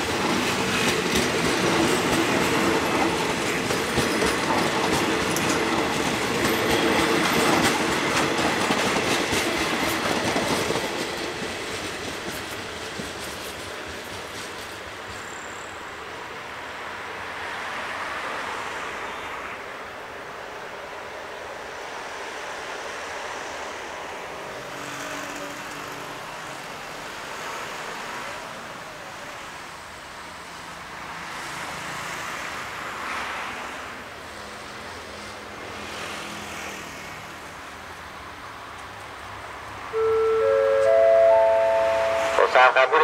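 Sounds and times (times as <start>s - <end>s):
passing vehicles rumbling: 23.4s - 43.0s.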